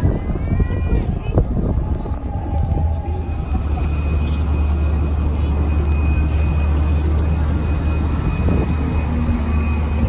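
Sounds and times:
wind: 0.0s - 10.0s
ferry engine drone: 0.2s - 10.0s
faint high whine: 2.8s - 10.0s.

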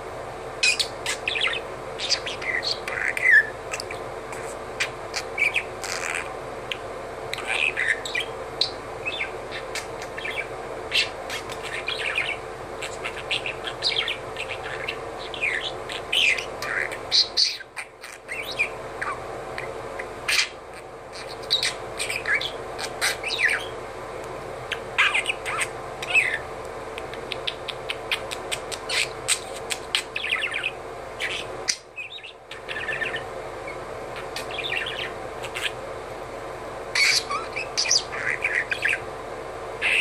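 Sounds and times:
budgerigar chattering: 7.4s - 23.8s, 24.7s - 26.4s, 27.2s - 35.8s, 37.0s - 39.0s, 39.8s - 40.0s.

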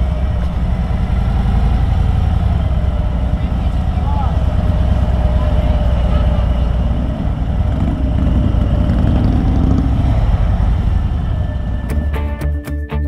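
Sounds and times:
motorcycle engine rumbling: 0.0s - 12.6s.

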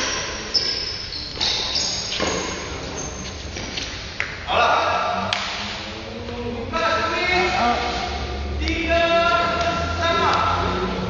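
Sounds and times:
shoe soles squeaking on court: 0.0s - 4.1s
rackets striking shuttlecock: 5.3s - 5.9s.

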